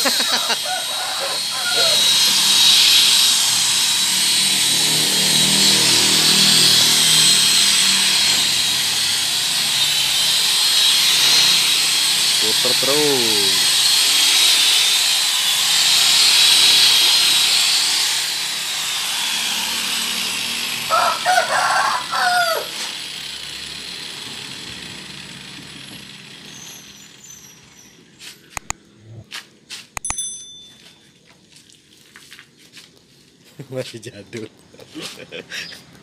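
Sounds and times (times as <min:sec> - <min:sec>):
rooster crowing: 0:00.0 - 0:02.5, 0:20.8 - 0:22.9
rotary polisher whirring: 0:01.2 - 0:20.9, 0:28.6 - 0:28.8
sharp clicks: 0:28.5 - 0:28.8
short high ding: 0:30.0 - 0:31.1.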